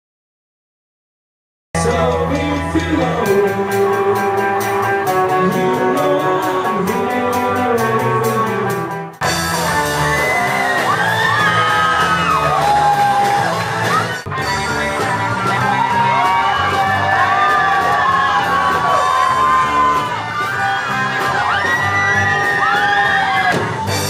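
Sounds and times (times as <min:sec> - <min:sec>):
person singing: 0:01.8 - 0:08.9
live rock band: 0:01.8 - 0:24.0.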